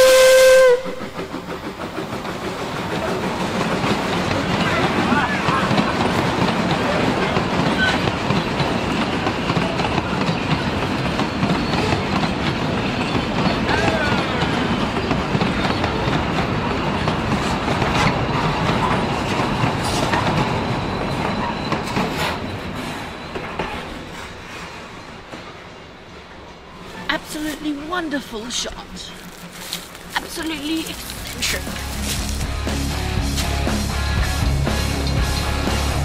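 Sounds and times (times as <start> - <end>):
train wheels clattering on rails: 0.0 - 36.0
wheel squeal: 10.4 - 16.0, 18.0 - 25.3.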